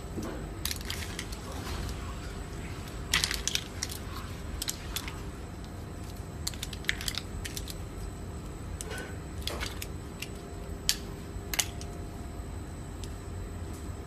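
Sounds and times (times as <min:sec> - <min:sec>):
mussel shells clicking in a pot: 0:03.0 - 0:05.2, 0:06.0 - 0:07.9, 0:08.7 - 0:12.0.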